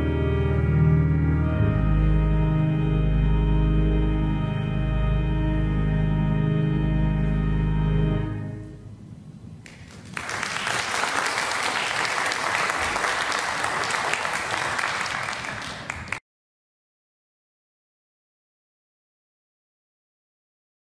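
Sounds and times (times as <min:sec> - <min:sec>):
instrumental music chord: 0:00.0 - 0:09.0
congregation applauding: 0:09.6 - 0:16.2.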